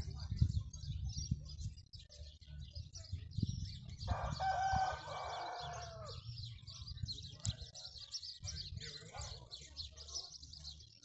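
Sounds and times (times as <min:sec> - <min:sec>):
small birds chirping: 0:00.0 - 0:11.0
rooster crowing: 0:04.1 - 0:06.2.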